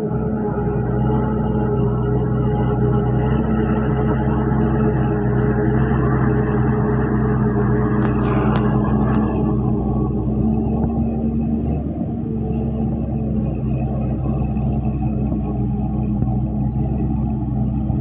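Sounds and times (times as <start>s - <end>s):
tractor engine under load: 0.0s - 18.0s.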